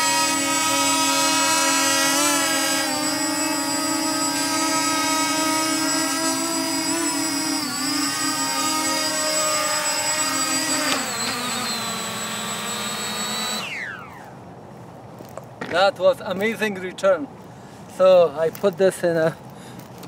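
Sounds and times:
drone propellers whining: 0.0 - 14.6.

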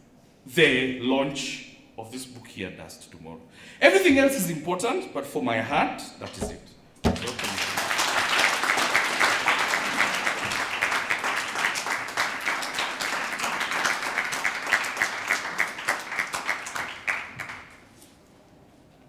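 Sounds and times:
audience applauding: 7.1 - 17.9.

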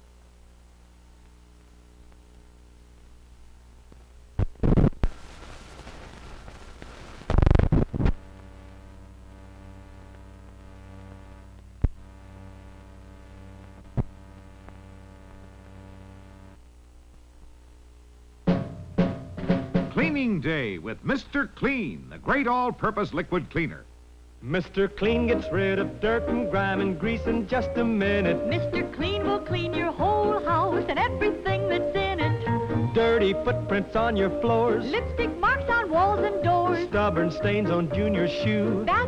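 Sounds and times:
film soundtrack electrical hum: 0.0 - 39.0
loud crackling bursts: 3.8 - 17.4.

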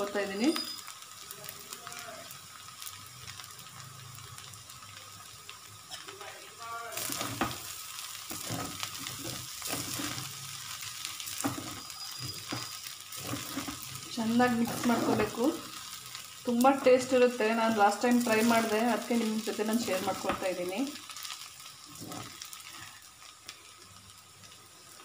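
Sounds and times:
faint frying sizzle: 0.0 - 25.0
spoon stirring rice in a pan: 7.0 - 16.4, 20.0 - 23.3.

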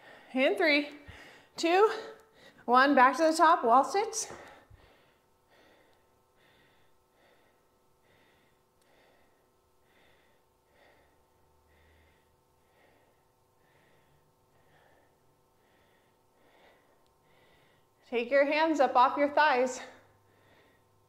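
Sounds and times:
woman breathing quickly: 0.0 - 2.7, 4.2 - 18.0, 19.8 - 21.0
faint steady hum: 0.0 - 21.0.

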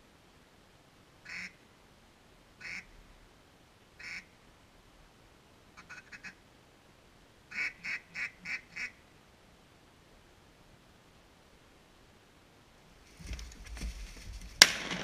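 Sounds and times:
duck quacking: 1.2 - 1.6, 2.6 - 2.9, 4.0 - 4.3, 5.8 - 6.4, 7.5 - 9.0.

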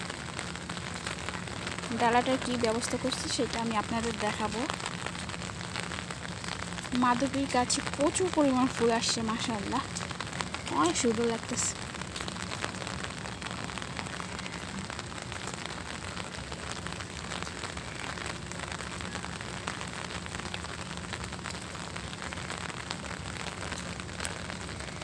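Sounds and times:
heavy rain falling: 0.0 - 25.0.

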